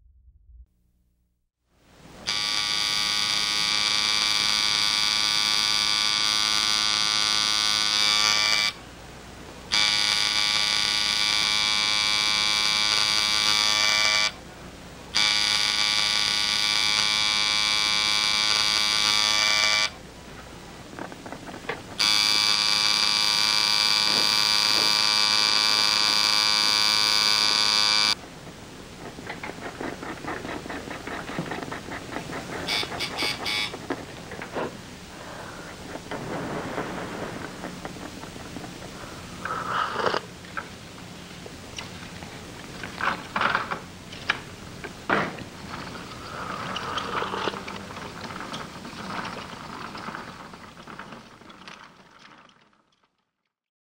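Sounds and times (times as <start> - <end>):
loud buzzing hum: 2.0 - 8.9, 9.7 - 14.5, 15.1 - 20.0, 22.0 - 28.9, 32.7 - 33.9.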